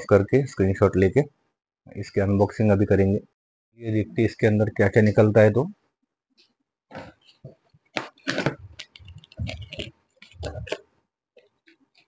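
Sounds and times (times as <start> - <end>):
cardboard box being opened: 8.0 - 10.8.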